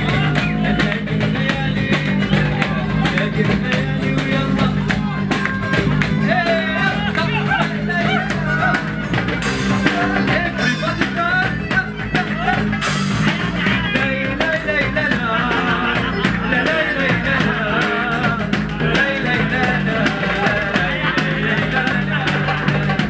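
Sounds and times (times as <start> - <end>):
man singing into microphone: 0.0 - 9.2, 9.8 - 23.0
acoustic guitar: 0.0 - 23.0
bass: 0.0 - 23.0.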